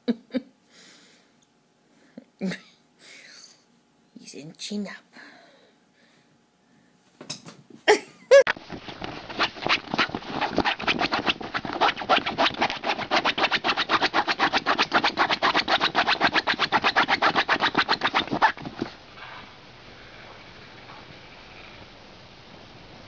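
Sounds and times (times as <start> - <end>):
dog paws scratching fabric: 8.5 - 19.4.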